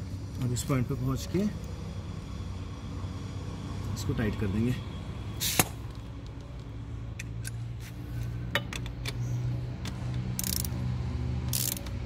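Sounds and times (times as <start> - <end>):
socket wrench ratcheting: 9.8 - 10.8, 11.4 - 12.0.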